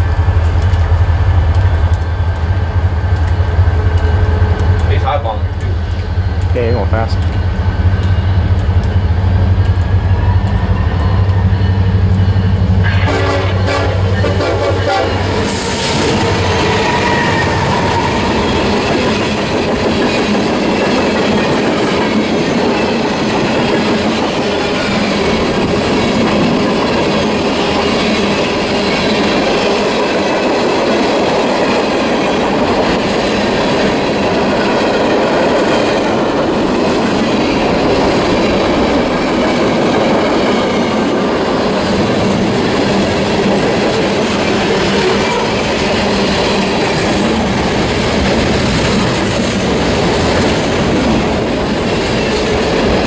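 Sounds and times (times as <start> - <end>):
wheels clicking over rail joints: 0.0 - 12.3
diesel locomotive drone: 0.0 - 53.0
train horn: 10.0 - 18.8, 44.7 - 45.8.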